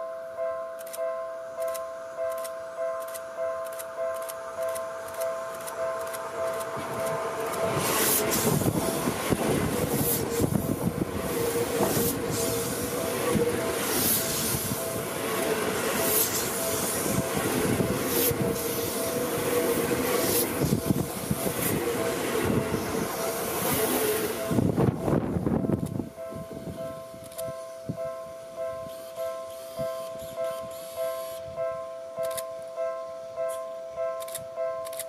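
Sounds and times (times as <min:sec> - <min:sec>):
train wheels rumbling on rails: 0:01.6 - 0:28.0.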